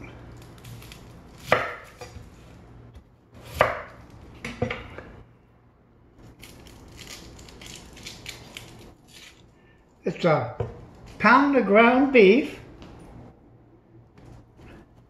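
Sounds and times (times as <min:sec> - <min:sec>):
knife chopping on wooden board: 0:01.4 - 0:02.3, 0:03.4 - 0:04.8.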